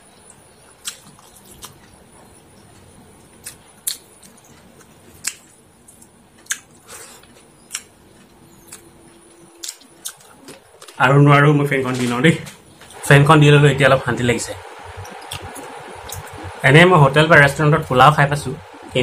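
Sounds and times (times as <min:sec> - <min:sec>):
person chewing food: 0:00.7 - 0:08.9, 0:09.6 - 0:11.0
lip smacks and mouth clicks: 0:03.4 - 0:08.9.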